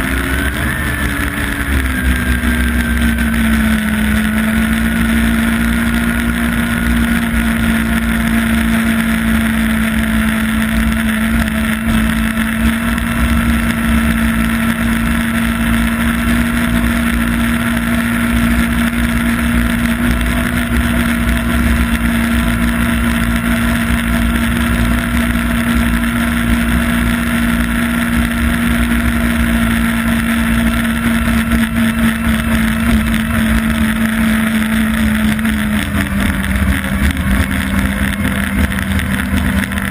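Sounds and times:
snowmobile engine cruising: 0.0 - 39.9.

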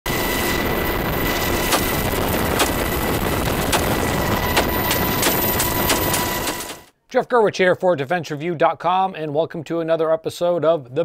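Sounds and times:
helicopter cabin noise: 0.1 - 6.9
carbine gunshots: 1.5 - 6.9.

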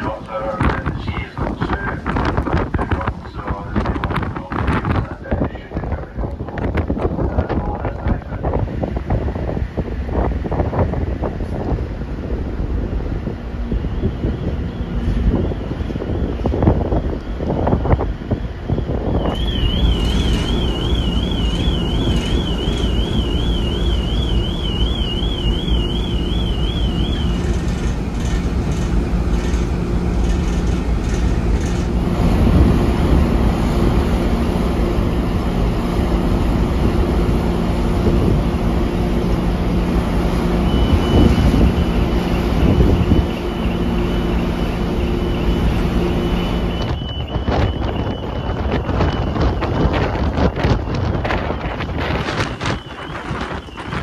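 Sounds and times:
low ship machinery hum: 0.0 - 54.0
wind buffeting microphone: 0.0 - 54.0
steady high tone: 19.1 - 28.4
warbling electronic tone: 19.3 - 28.4.

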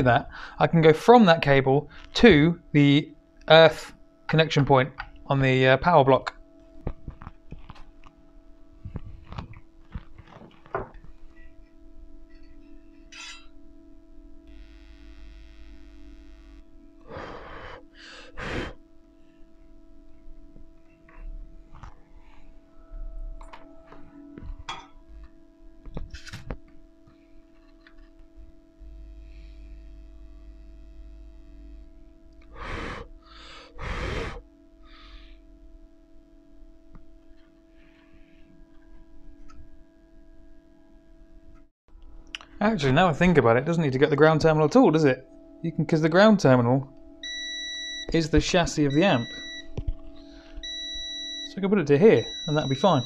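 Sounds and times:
faint steady hum: 0.0 - 53.0
breathy puffs of air: 17.0 - 18.8, 32.4 - 35.4.

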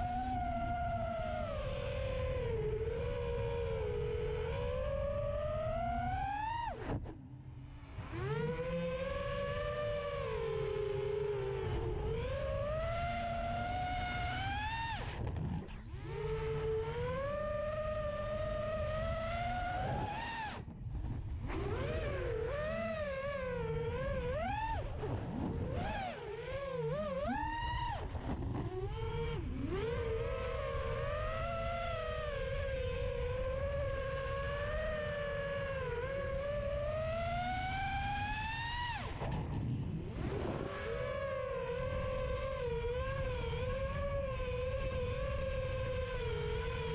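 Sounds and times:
drone motors and propellers whining: 0.0 - 46.9.

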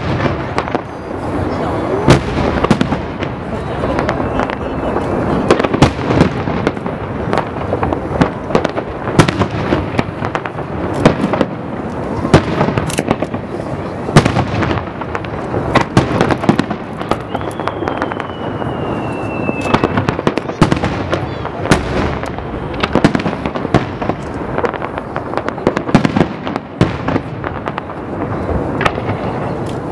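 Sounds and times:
fireworks bursting: 0.0 - 29.9
descending firework whistle: 3.5 - 6.0, 16.2 - 23.2.

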